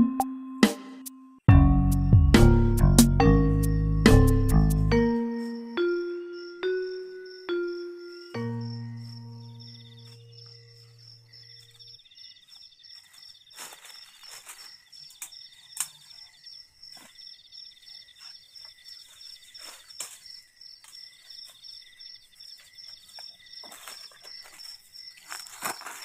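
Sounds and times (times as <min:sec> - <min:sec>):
insects chirping: 0:05.0 - 0:26.0
insect buzzing trill: 0:05.4 - 0:26.0
footsteps through dry leaves: 0:12.4 - 0:17.2, 0:18.1 - 0:21.6, 0:22.5 - 0:26.0
twig snapping: 0:15.1 - 0:16.0.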